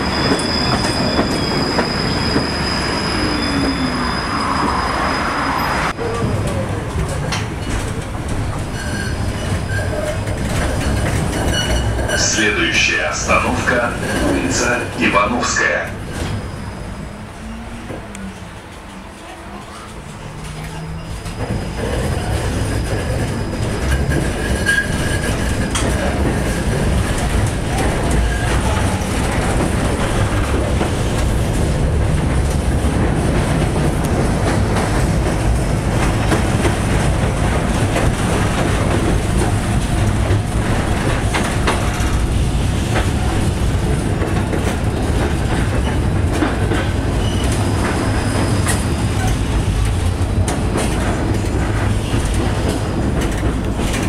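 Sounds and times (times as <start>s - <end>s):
tram running rumble: 0.0s - 54.0s
wheels clicking on rails: 19.7s - 54.0s.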